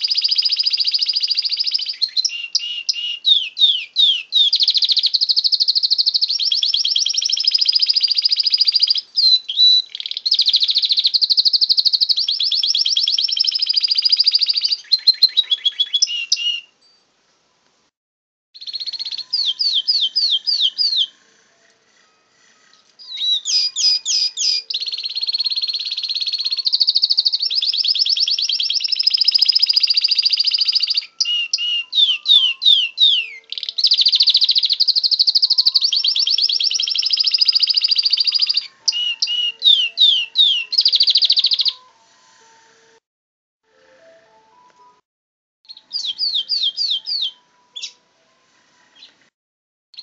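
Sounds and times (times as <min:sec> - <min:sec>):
canary singing trills: 0:00.0 - 0:17.1, 0:18.6 - 0:42.0, 0:45.7 - 0:48.1.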